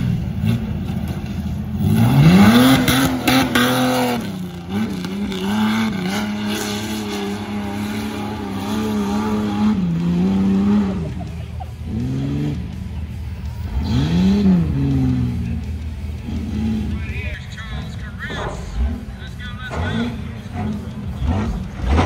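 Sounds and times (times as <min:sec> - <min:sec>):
engine revving hard: 0:01.8 - 0:11.2, 0:13.7 - 0:15.5, 0:18.7 - 0:22.0.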